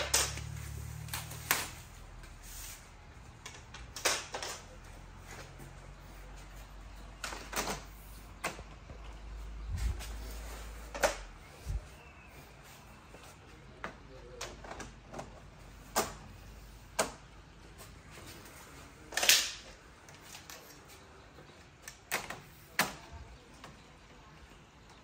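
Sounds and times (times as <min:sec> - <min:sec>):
plastic strips clicking and knocking: 0:00.0 - 0:01.8, 0:03.4 - 0:04.8.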